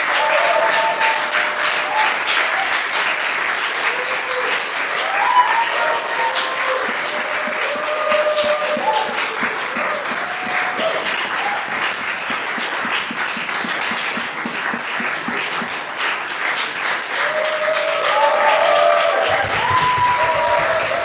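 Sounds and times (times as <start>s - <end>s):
audience applauding: 0.0s - 21.0s.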